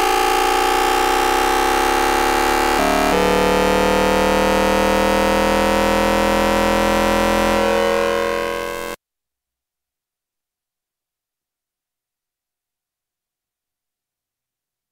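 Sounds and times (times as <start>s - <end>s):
added electronic tone: 0.0s - 9.0s
electronic whining tones of train: 0.0s - 9.0s.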